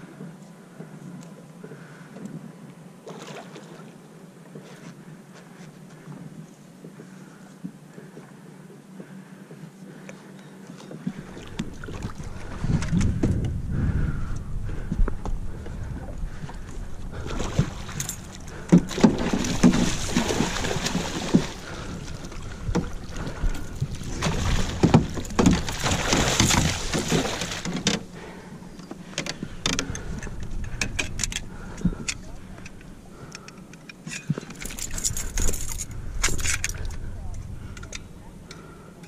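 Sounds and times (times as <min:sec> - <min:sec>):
water splashing beside a boat: 0:03.0 - 0:06.1, 0:10.7 - 0:13.5, 0:14.8 - 0:39.0
low rumble: 0:11.7 - 0:26.9.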